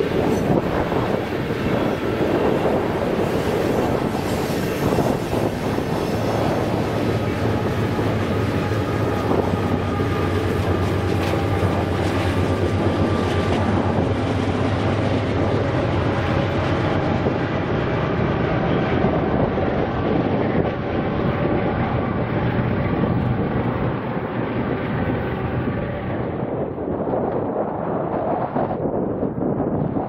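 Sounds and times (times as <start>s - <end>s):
train wheels clattering on rails: 0.0s - 19.2s
diesel locomotives humming: 0.0s - 27.9s.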